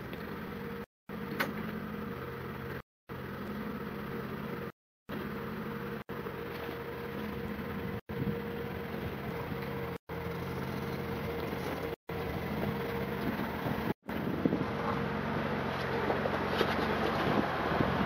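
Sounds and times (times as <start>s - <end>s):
car engine running at low revs: 0.0s - 18.0s.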